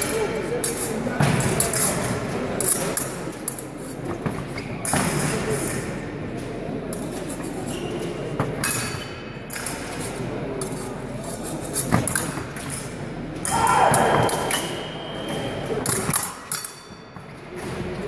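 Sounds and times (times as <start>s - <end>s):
fencing blades clicking and ringing: 0.0s - 4.0s, 8.6s - 14.8s, 15.8s - 17.1s
chatter in a large hall: 0.0s - 18.0s.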